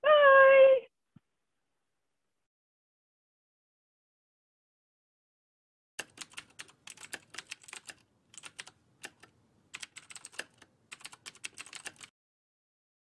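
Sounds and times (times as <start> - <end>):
computer keyboard typing: 6.0 - 12.1.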